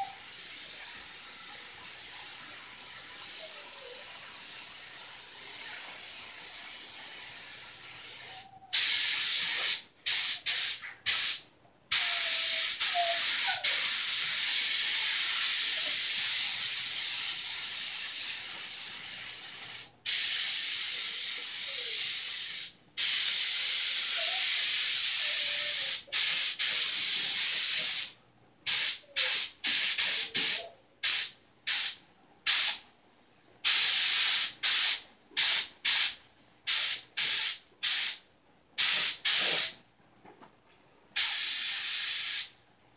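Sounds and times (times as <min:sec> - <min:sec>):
spray gun hissing: 0:00.0 - 0:03.4, 0:08.7 - 0:28.1, 0:28.7 - 0:32.8, 0:33.6 - 0:38.2, 0:38.8 - 0:39.8, 0:41.2 - 0:42.6.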